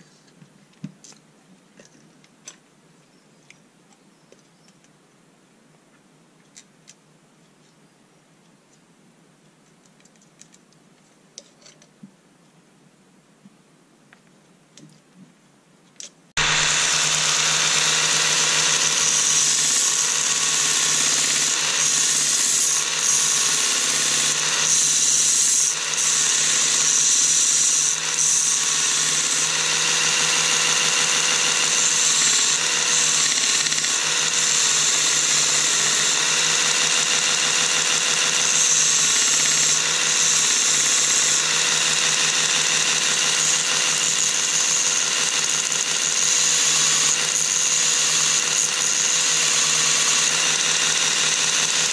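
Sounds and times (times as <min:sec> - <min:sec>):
belt sander grinding metal: 0:16.4 - 0:51.9.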